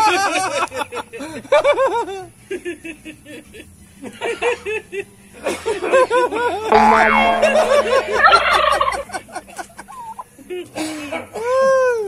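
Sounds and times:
turkey gobbling: 8.2s - 9.0s.

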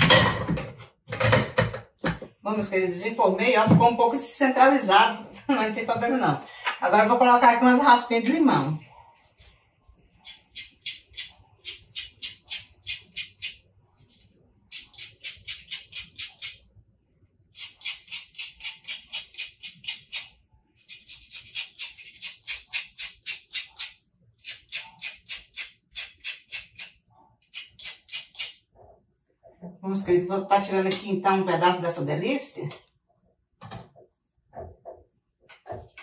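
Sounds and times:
grater rasping lime peel: 14.7s - 16.6s, 17.6s - 28.6s.

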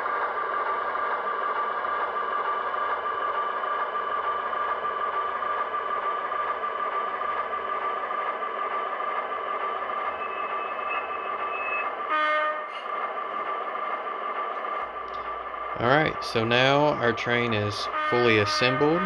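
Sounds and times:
model locomotive humming: 0.0s - 19.0s
locomotive horn blast: 11.0s - 12.8s, 15.1s - 19.0s.

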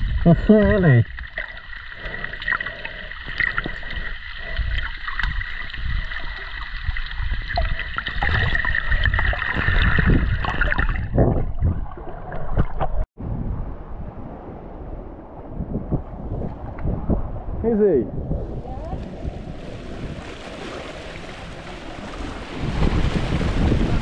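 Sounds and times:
muffled underwater sloshing: 18.2s - 24.0s.

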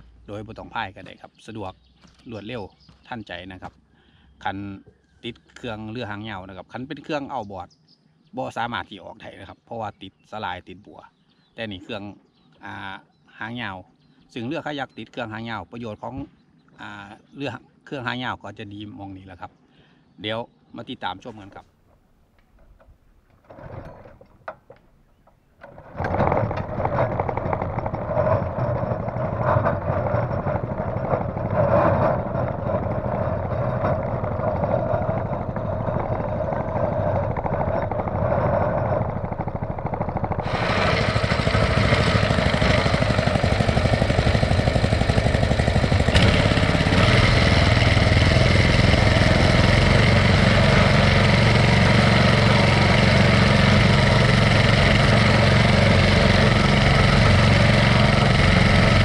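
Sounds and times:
boat motor engine running: 23.4s - 59.0s
propeller churning water: 25.6s - 59.0s.

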